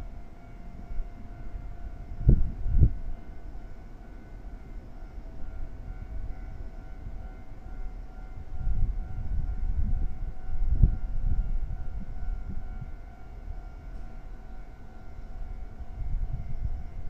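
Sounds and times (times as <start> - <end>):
wind buffeting microphone: 0.8 - 3.3, 5.4 - 14.4, 15.2 - 17.0.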